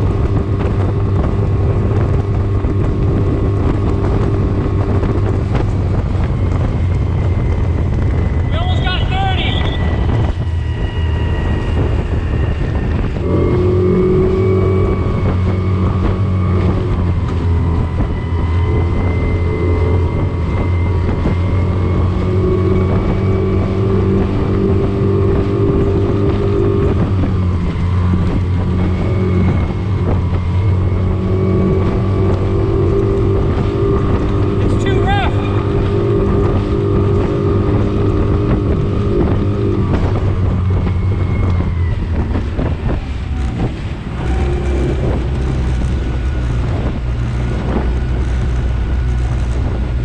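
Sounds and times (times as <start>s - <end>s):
outboard motor running flat out: 0.0s - 50.0s
wind buffeting the microphone: 0.0s - 50.0s.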